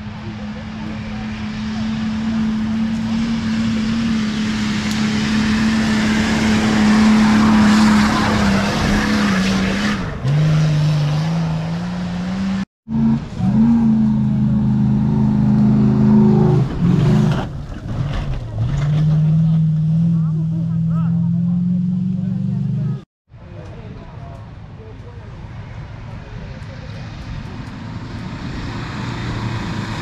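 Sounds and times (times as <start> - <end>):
engine revving high: 0.0 - 17.5, 18.6 - 23.1, 27.9 - 30.0.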